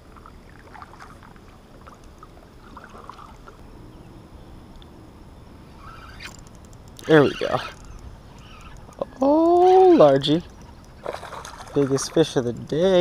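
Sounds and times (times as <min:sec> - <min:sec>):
low steady water rush: 0:00.0 - 0:13.0
small ticks and drips: 0:07.7 - 0:13.0.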